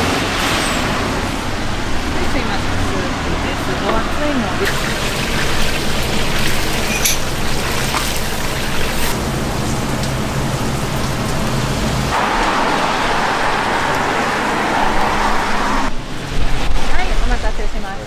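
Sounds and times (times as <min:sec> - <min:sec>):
hot oil sizzling: 0:04.6 - 0:14.0.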